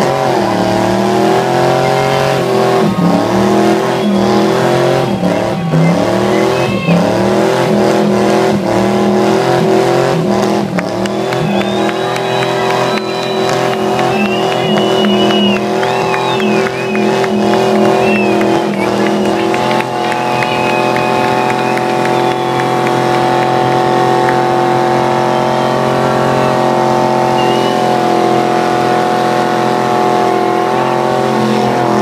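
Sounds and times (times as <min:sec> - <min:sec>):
car engine revving high: 0:00.0 - 0:32.0
tyre squeal: 0:24.8 - 0:28.4.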